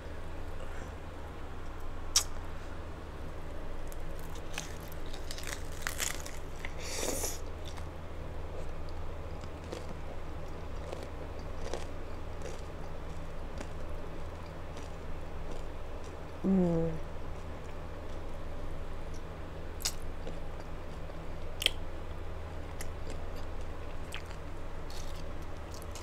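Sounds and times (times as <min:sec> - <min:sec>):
crunching bites into taco shell: 0:03.8 - 0:06.8
person chewing: 0:03.9 - 0:07.9, 0:09.4 - 0:13.8, 0:22.8 - 0:26.0.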